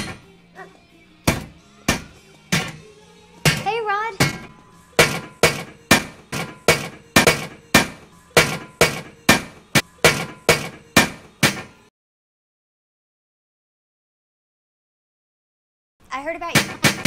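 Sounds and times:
sharp hits: 1.3s - 11.8s.

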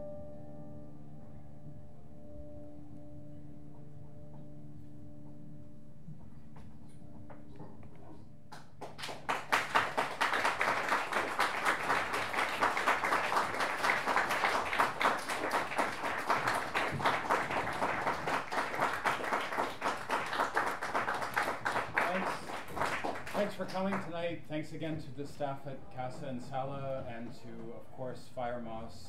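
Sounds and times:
audience applause: 8.5s - 24.1s.

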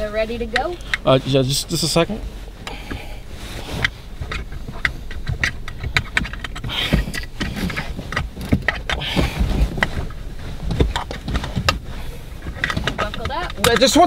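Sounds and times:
clothing rustling: 0.0s - 14.0s
low thumps: 0.0s - 14.0s.

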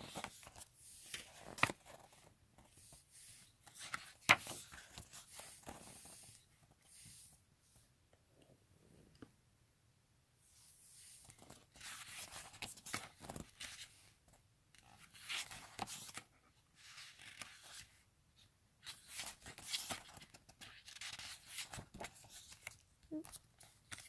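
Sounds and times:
glossy pages rustling: 0.0s - 7.4s, 11.0s - 14.0s, 14.8s - 18.0s, 18.8s - 24.0s.

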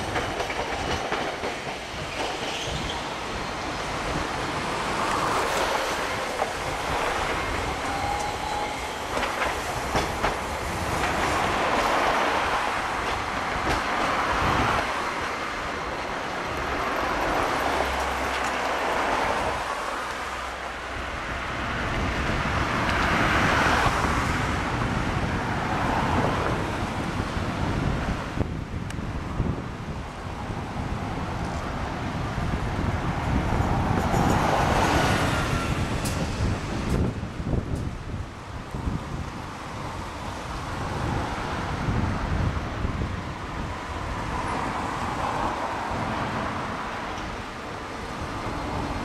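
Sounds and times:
clacks over rail joints: 0.0s - 3.4s, 4.7s - 15.0s
tram wheels rumbling on rails: 0.0s - 49.0s.

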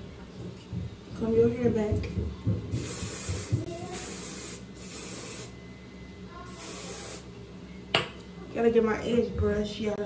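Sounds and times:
spray can hissing: 2.7s - 5.6s, 6.5s - 7.3s.

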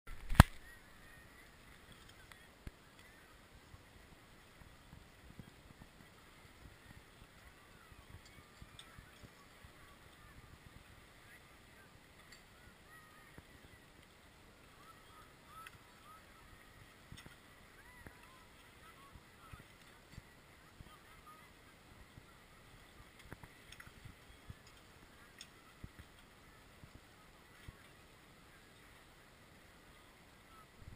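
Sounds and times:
faint outdoor ambience: 0.1s - 30.9s.

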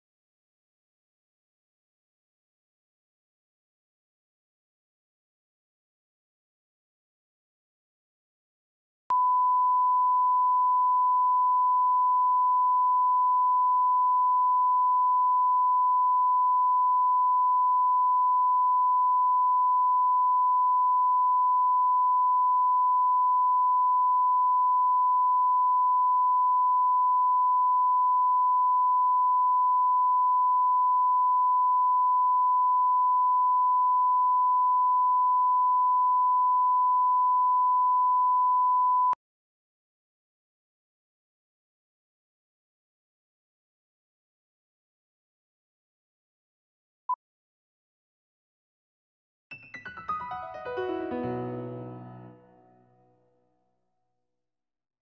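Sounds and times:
steady test tone beep: 9.1s - 39.2s.

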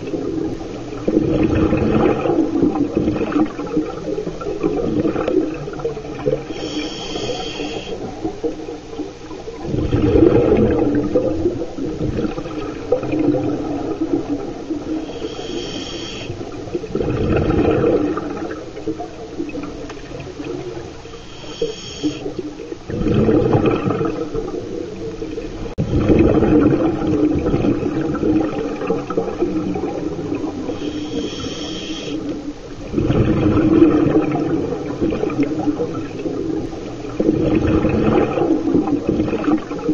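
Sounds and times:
exhaled bubbles rushing: 0.0s - 39.9s
regulator inhale hiss: 6.4s - 8.1s, 14.9s - 16.5s, 21.0s - 22.4s, 30.6s - 32.3s.

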